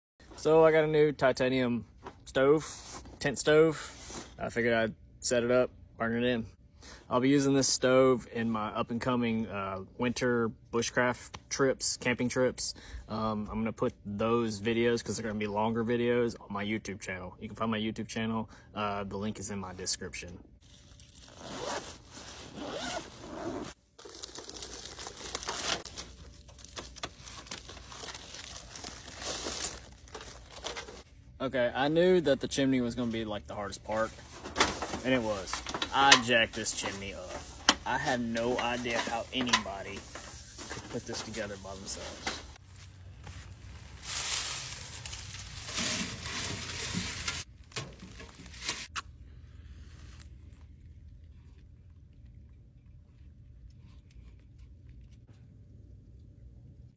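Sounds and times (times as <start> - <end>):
pine needles and twigs rustling: 24.0 - 30.6, 34.8 - 47.5
plastic wrapping crinkling: 24.0 - 31.0, 43.5 - 49.0.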